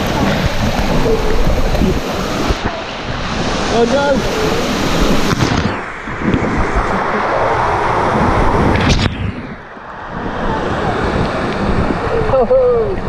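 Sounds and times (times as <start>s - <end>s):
water rushing and splashing: 0.0s - 13.0s.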